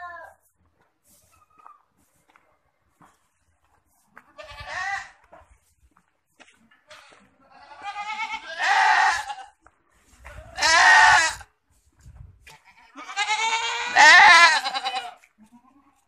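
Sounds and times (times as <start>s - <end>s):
goats bleating: 4.3s - 5.2s, 6.9s - 9.6s, 10.4s - 11.5s, 12.5s - 16.0s.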